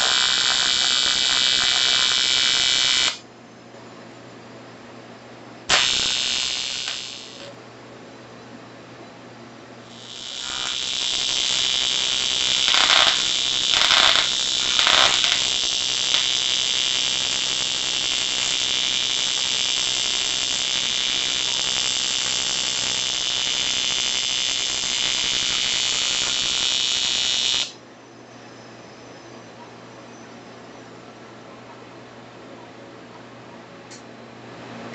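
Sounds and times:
welding arc buzzing: 0:00.0 - 0:03.2, 0:05.7 - 0:07.6, 0:09.9 - 0:27.8.

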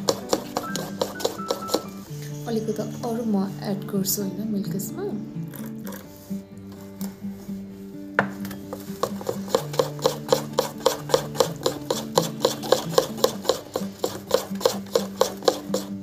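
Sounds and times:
spoon scraping batter in bowl: 0:00.0 - 0:02.0, 0:08.4 - 0:16.0.

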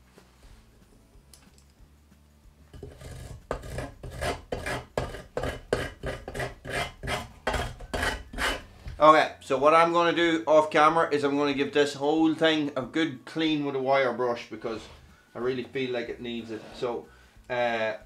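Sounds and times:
hand tool scraping metal frame: 0:02.7 - 0:09.0, 0:15.7 - 0:17.1.

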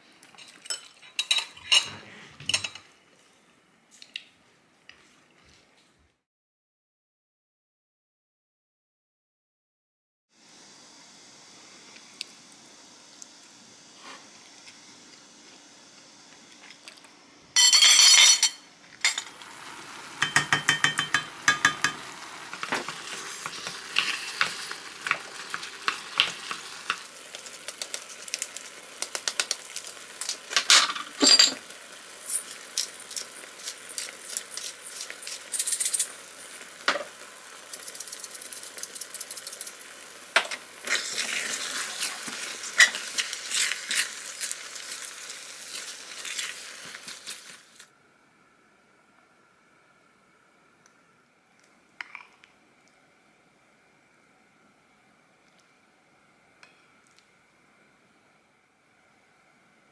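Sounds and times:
sauce sizzling in a pan: 0:19.3 - 0:47.9
spoon knocking and scraping pan: 0:20.2 - 0:27.0.

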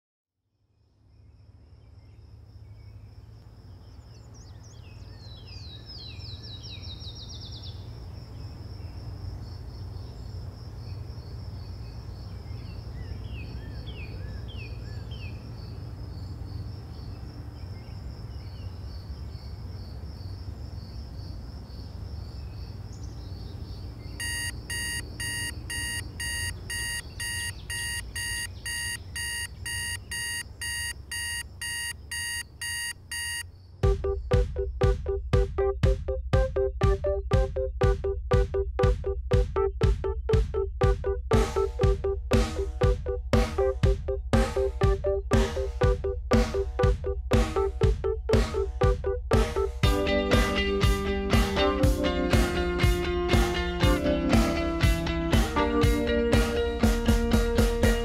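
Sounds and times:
birds chirping: 0:01.1 - 0:21.2, 0:22.2 - 0:35.8
phone alarm beeping: 0:24.2 - 0:35.5
high steady tone: 0:24.2 - 0:49.7.

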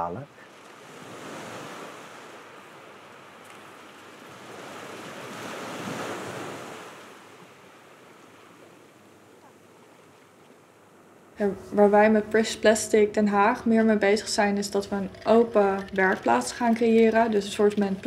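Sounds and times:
small waves breaking on beach: 0:00.4 - 0:11.3.

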